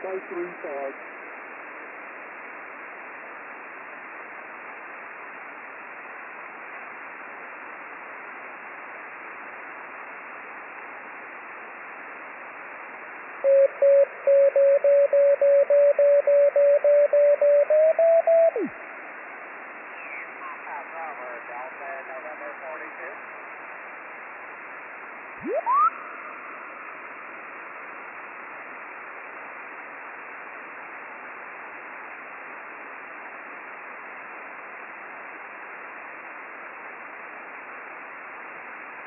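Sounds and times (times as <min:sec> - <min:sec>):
radio receiver hiss: 0:11.6 - 0:31.1
morse code beeps: 0:13.5 - 0:18.7.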